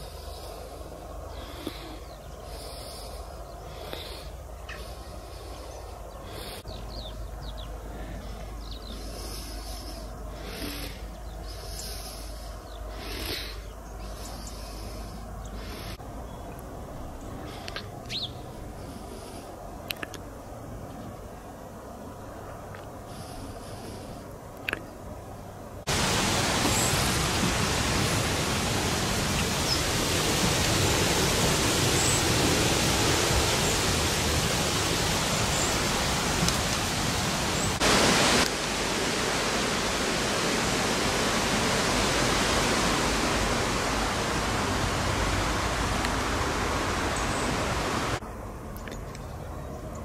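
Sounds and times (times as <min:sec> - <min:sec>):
faint high bird chirps: 0:18.1 - 0:18.4
flowing water rushing: 0:25.9 - 0:48.2.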